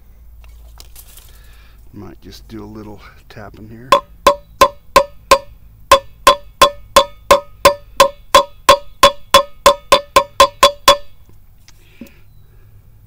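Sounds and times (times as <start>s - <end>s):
hammer tapping metal: 3.9s - 11.2s.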